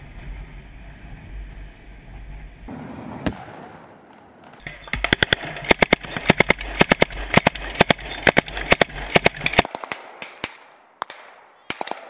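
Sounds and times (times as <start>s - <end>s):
gunshots: 2.7s - 12.0s.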